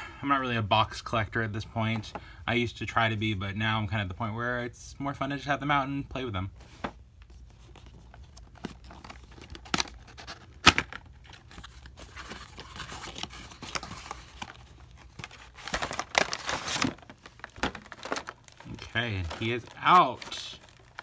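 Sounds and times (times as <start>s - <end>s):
cardboard and plastic rustling: 6.5s - 21.0s.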